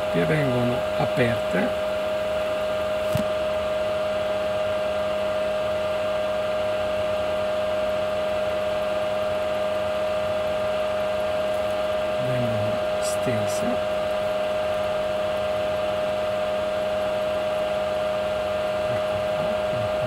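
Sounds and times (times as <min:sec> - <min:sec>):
constant whine: 0:00.0 - 0:20.0
machine hum: 0:00.0 - 0:20.0.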